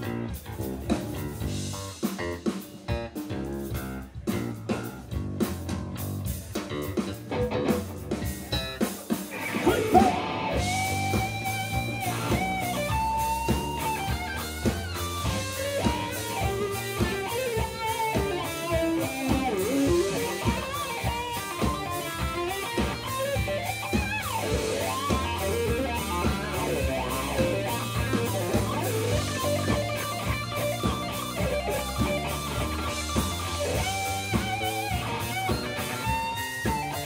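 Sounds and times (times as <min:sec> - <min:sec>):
live rock band playing: 0:00.0 - 0:37.0
bending lead melody notes: 0:09.4 - 0:37.0.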